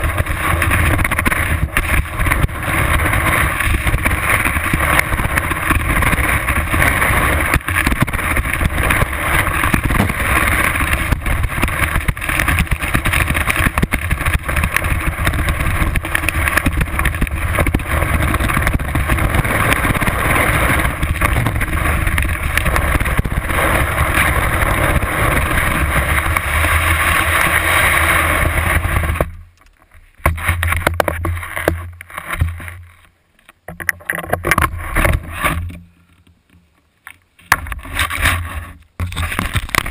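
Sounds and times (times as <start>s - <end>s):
rushing wind: 0.0s - 29.3s
skis scraping through snow: 0.0s - 29.3s.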